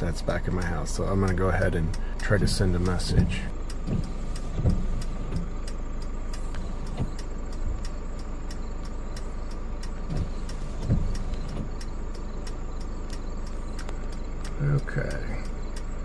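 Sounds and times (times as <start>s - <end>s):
faint steady tone: 0.0s - 16.0s
light irregular ticks: 0.0s - 16.0s
soft low thumps: 0.0s - 16.0s
vehicle cabin hum: 0.0s - 16.0s.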